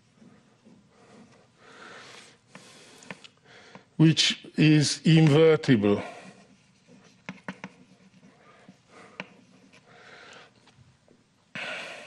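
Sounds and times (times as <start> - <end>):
chalk tapping on blackboard: 0.0 - 1.4, 5.2 - 9.9
chalk scratching on blackboard: 0.0 - 1.6, 5.1 - 10.2.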